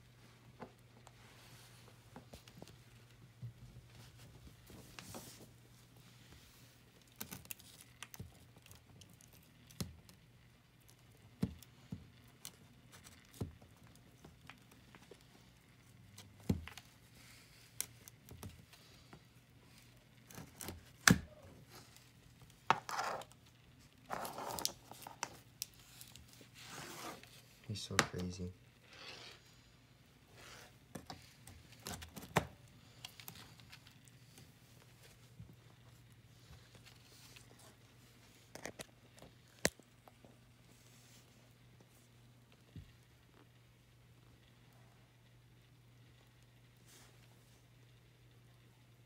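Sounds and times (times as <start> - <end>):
rustling scrapes: 24.0 - 27.6, 30.2 - 30.9.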